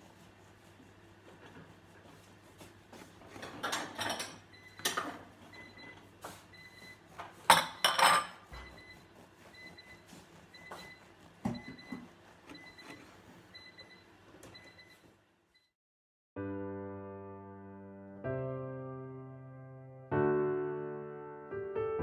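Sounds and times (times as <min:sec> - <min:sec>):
knife sawing through bread: 0:08.5 - 0:11.4.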